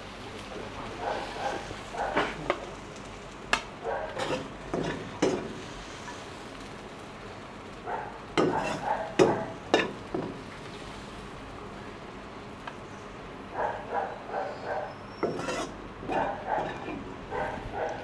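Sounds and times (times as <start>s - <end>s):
light frying sizzle: 0.0s - 18.0s
ladle scraping in a wok: 4.1s - 6.4s, 8.4s - 9.9s, 15.2s - 17.1s.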